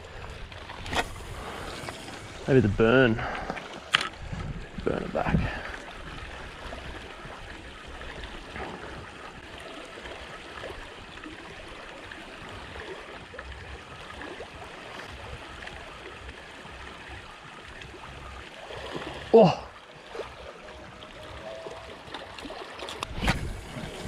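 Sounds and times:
waves lapping on rocky shore: 0.0 - 13.3, 18.1 - 24.0.

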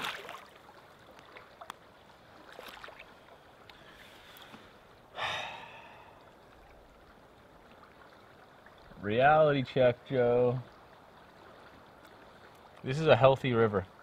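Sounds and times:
faint river water: 0.0 - 14.0
light ticks: 1.1 - 1.8, 3.6 - 4.6, 12.0 - 12.9
man sighing: 5.2 - 6.2.

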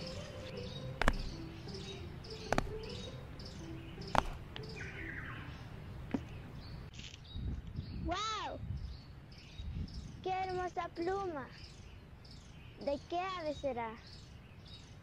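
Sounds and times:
birds chirping: 0.0 - 15.0
sneakers knocking on wooden stumps: 1.0 - 1.4, 2.4 - 3.0, 4.0 - 4.4.

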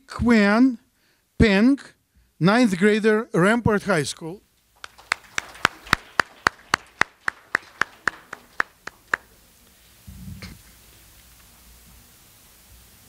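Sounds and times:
person clapping: 4.8 - 9.4.

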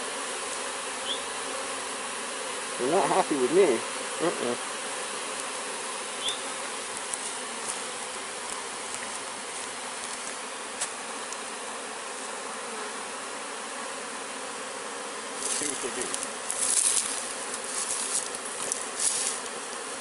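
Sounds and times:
bees buzzing: 0.0 - 20.0.

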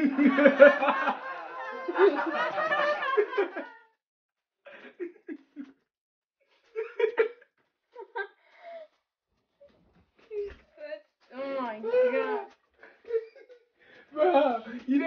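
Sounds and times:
man and woman laughing: 0.0 - 4.0, 6.8 - 8.4.

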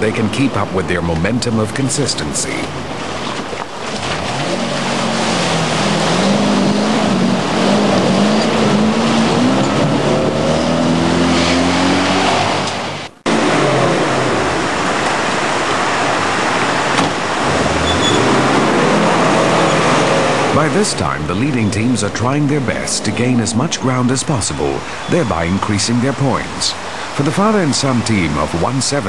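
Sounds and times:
car engine revving hard: 4.0 - 24.1.

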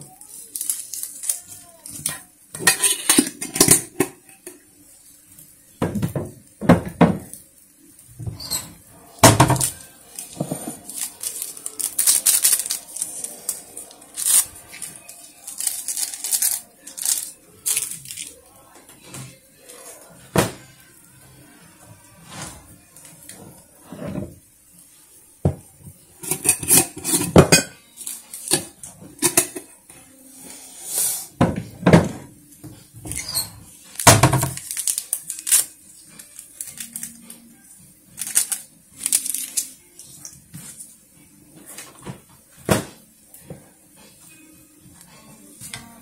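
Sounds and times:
dishes and cutlery clinking: 1.9 - 4.6, 8.2 - 18.3, 25.5 - 29.8.

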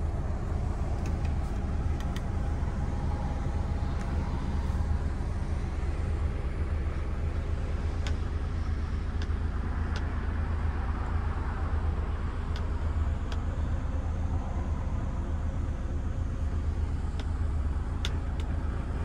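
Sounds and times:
diesel truck engine idling: 0.0 - 19.0
light clicks: 0.8 - 3.3, 7.9 - 8.4, 9.1 - 10.2, 12.5 - 13.5, 17.1 - 18.6.

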